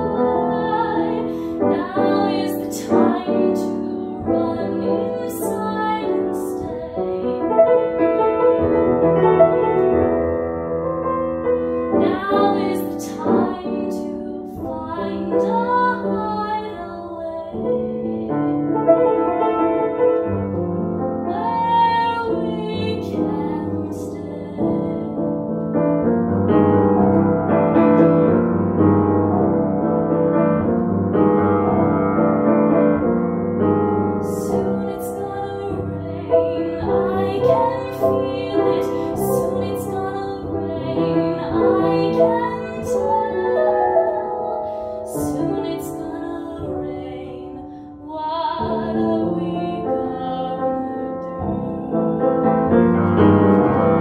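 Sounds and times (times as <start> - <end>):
woman singing a slow ballad: 0.0 - 7.6, 11.9 - 18.6, 21.3 - 25.4, 34.2 - 52.4
grand piano: 0.0 - 54.0.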